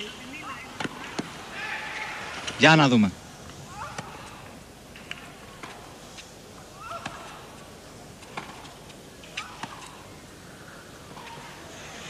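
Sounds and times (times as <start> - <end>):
rackets striking tennis ball: 0.8 - 1.3, 6.8 - 10.1.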